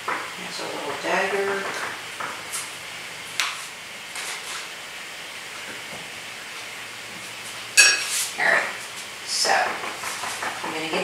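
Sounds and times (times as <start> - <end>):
low room noise: 0.0 - 11.0
tools clinking against containers: 7.8 - 8.1.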